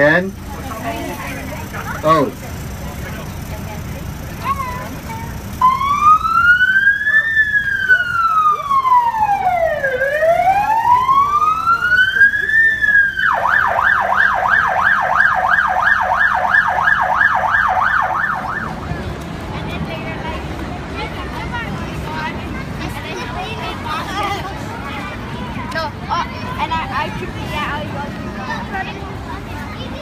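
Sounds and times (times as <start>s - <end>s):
police siren wailing and yelping: 5.5s - 18.9s.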